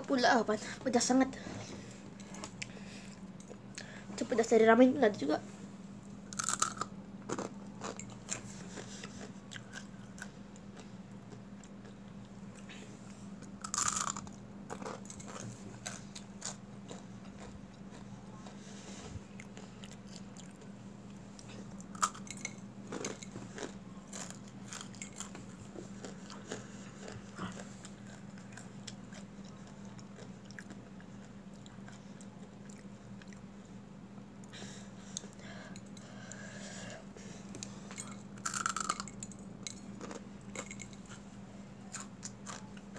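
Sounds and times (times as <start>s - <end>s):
faint steady hum: 0.0s - 42.9s
crunchy snack chewing: 6.3s - 10.9s, 13.4s - 18.6s, 21.8s - 32.0s, 38.0s - 39.2s, 40.0s - 40.8s.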